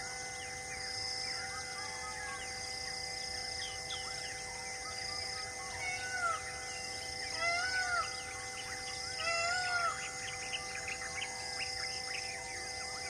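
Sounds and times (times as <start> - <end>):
bird rise-and-fall call: 5.3 - 12.3.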